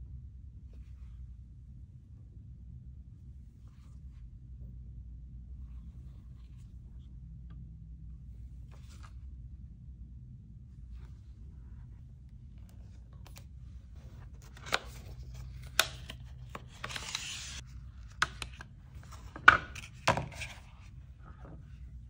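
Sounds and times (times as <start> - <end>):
paperboard sliding rustle: 14.0 - 17.7.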